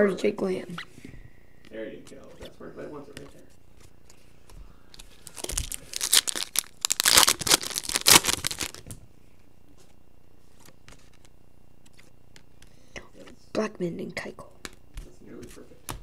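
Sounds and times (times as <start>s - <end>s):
foil wrapper tearing and crinkling: 5.1s - 8.9s.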